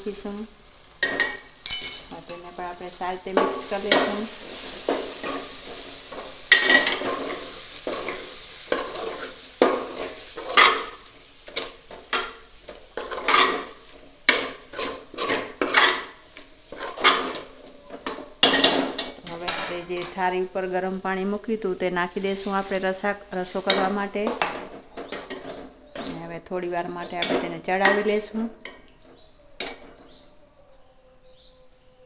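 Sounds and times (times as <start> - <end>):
spoon scraping metal pot: 13.0 - 16.1, 16.7 - 20.2.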